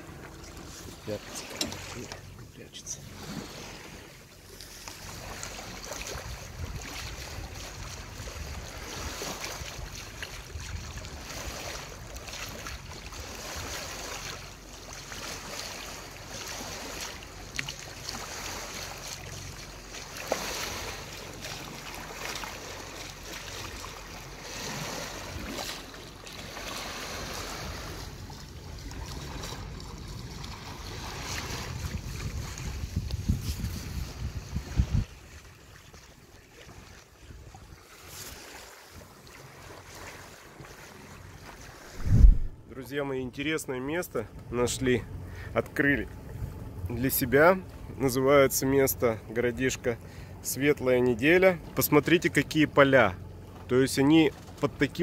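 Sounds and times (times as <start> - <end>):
water splashing along hull: 0.0 - 55.0
wind on microphone: 6.1 - 9.7, 31.0 - 35.3, 41.9 - 42.7.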